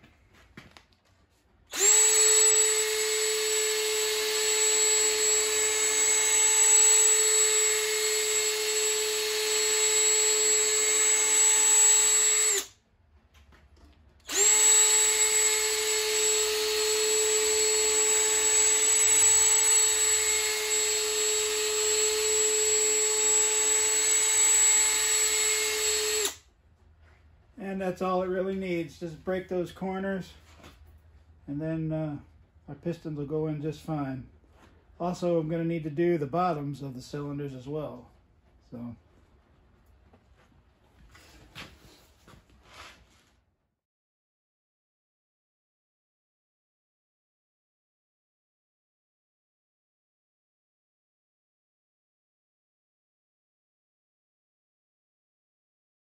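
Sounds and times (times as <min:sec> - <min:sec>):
cordless drill motor whine: 0:01.7 - 0:12.7, 0:14.2 - 0:26.4.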